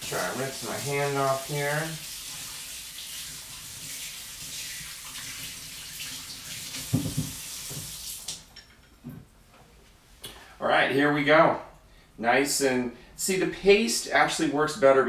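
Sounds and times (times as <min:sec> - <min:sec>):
faucet water splashing: 0:00.0 - 0:08.5.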